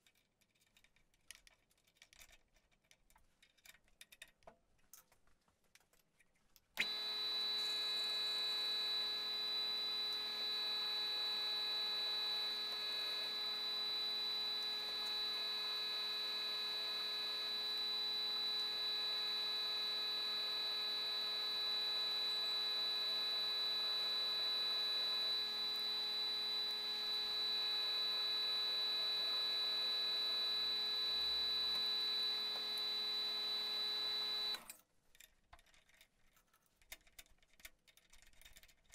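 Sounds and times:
drill bit cutting metal: 6.8s - 34.6s
milling spindle high-pitched whine: 6.8s - 34.6s.

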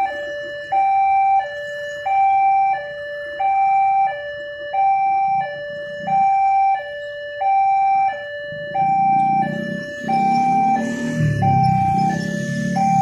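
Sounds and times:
motorcycle engines: 0.0s - 13.0s
two-tone crossing alarm: 0.0s - 13.0s.

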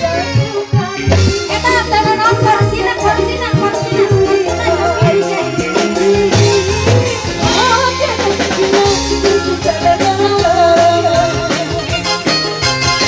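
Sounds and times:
bass: 0.0s - 13.0s
drums: 0.0s - 13.0s
wavering melody line: 0.8s - 9.0s.

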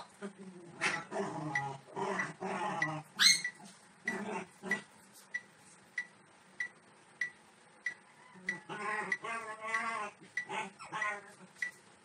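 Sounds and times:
puppy whining and yelping: 3.2s - 3.7s.

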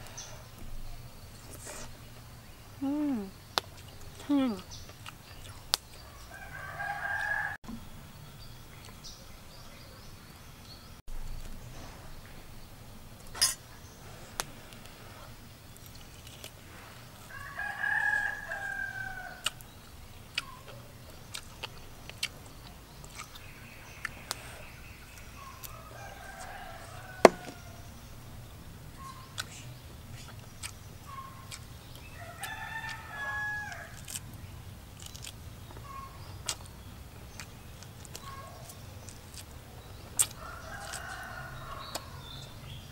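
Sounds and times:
rooster crowing: 6.1s - 7.6s, 17.3s - 19.4s, 25.7s - 27.8s, 32.2s - 34.0s, 40.4s - 42.3s.

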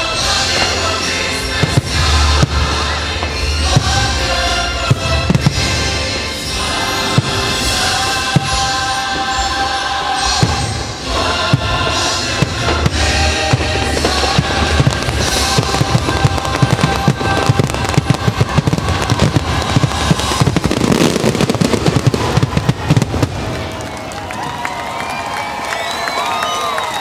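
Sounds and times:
music: 0.0s - 23.6s
rapid firework bangs: 11.5s - 23.8s.

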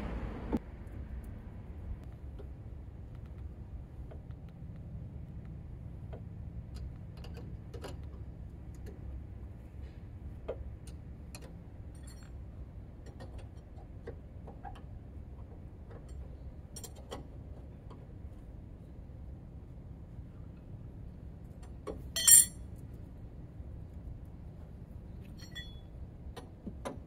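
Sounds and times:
low steady hum: 0.0s - 26.7s
hand tools clicking and clinking: 22.2s - 22.6s.

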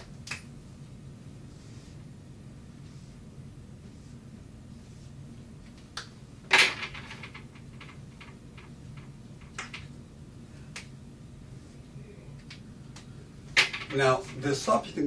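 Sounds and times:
marker strokes on whiteboard: 1.3s - 5.9s.

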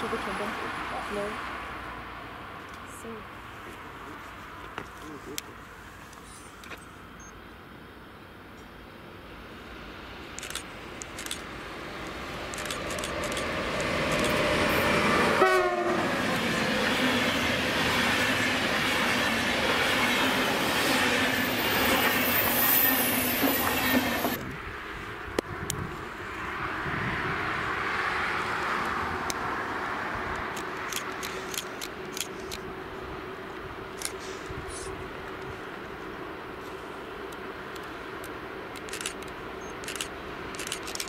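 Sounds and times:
train clatter and rumble: 9.4s - 27.6s, 28.3s - 41.0s
train horn blast: 15.3s - 16.2s.

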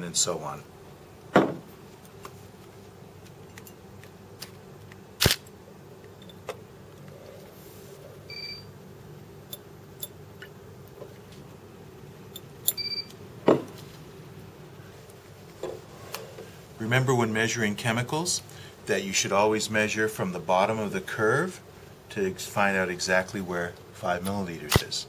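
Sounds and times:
short electronic beeps: 8.3s - 8.7s.

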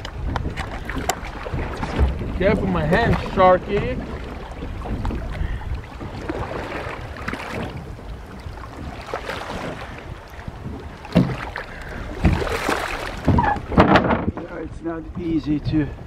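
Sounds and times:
water sloshing against boat: 0.0s - 16.0s
wind buffeting microphone: 0.0s - 16.0s
sudden knocks: 11.1s - 11.5s, 12.2s - 12.5s, 13.2s - 14.6s.

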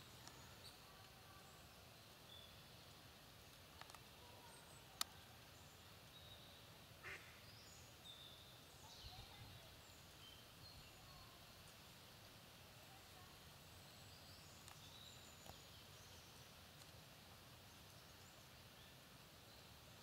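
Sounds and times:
duck quack: 7.0s - 7.3s.

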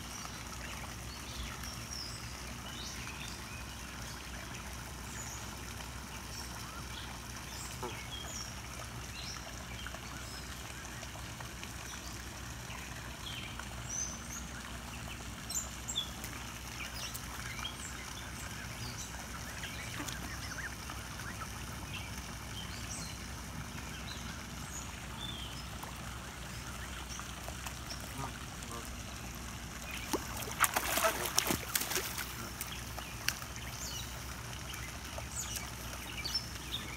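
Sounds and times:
birds chirping: 11.8s - 36.9s.

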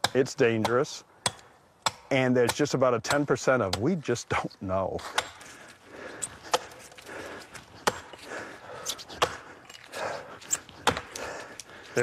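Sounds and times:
axe chopping tree trunk: 0.0s - 4.0s, 5.0s - 5.4s, 6.5s - 6.7s, 7.8s - 8.1s, 9.2s - 9.4s, 10.8s - 11.2s.

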